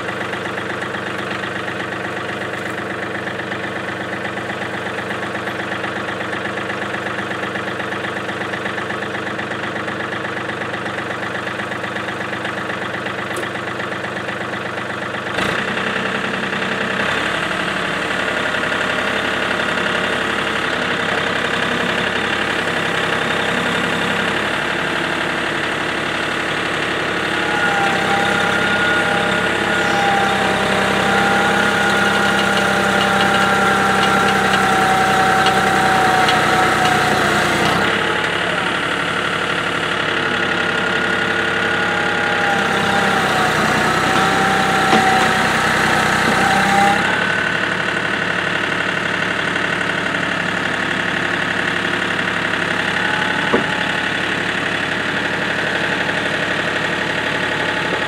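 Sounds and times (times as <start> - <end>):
tractor engine running: 0.0 - 58.0
steady whine: 52.2 - 58.0.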